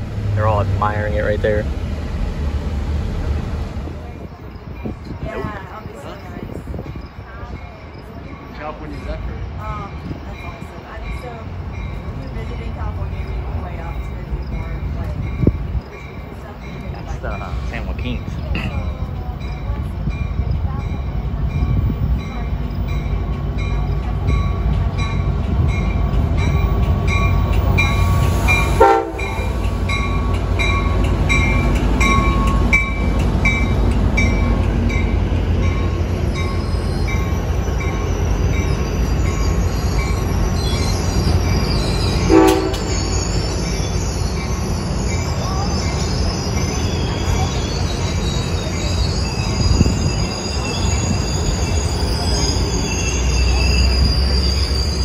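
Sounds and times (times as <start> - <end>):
train wheels rumbling on rails: 0.0 - 55.0
wheels squealing: 2.2 - 55.0
train bell ringing: 4.4 - 55.0
train horn toots: 27.9 - 29.6, 42.2 - 43.3.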